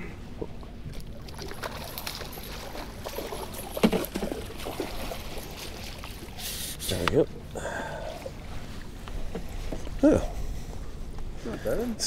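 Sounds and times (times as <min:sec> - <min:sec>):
water splashing and trickling: 0:00.6 - 0:07.0.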